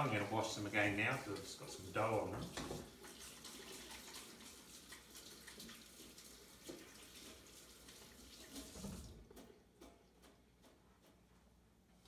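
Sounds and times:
tap running faintly: 0:00.0 - 0:11.6.

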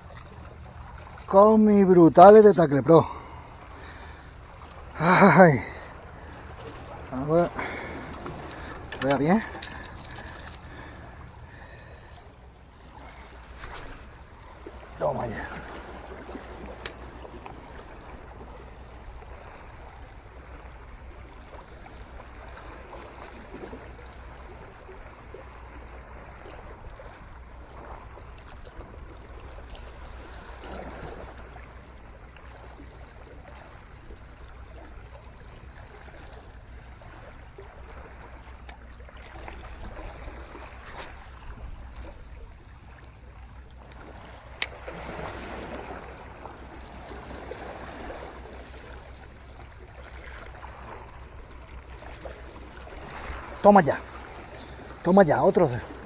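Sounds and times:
waves lapping against rocks: 0:00.0 - 0:56.0.

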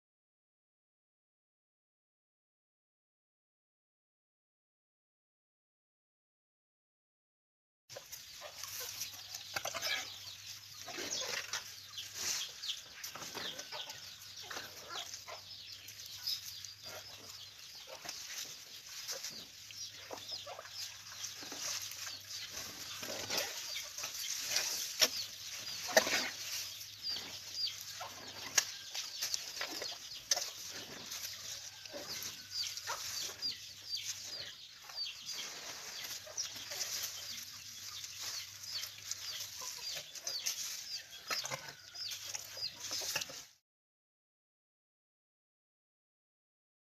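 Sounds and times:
elephants crunching fruit: 0:17.9 - 0:34.3
leaves rustling: 0:20.8 - 0:34.3.

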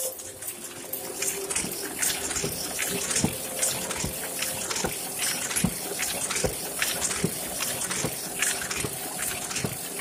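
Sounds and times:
printing press thumping: 0:00.6 - 0:10.0.

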